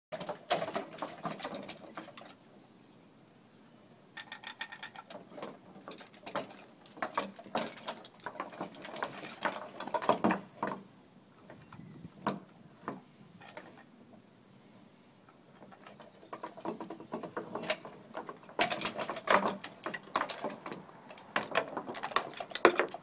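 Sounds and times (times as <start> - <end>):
wooden puppet clattering on boards: 0.2 - 2.4, 4.2 - 11.6, 12.2 - 13.9, 15.6 - 23.0.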